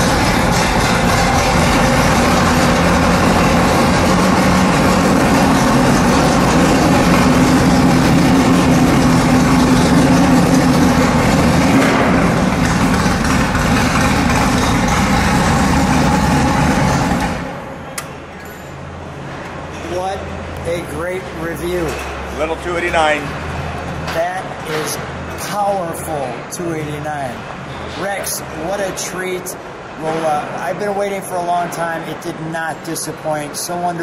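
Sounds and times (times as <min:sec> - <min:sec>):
race car engine idling loudly: 0:00.0 - 0:17.6.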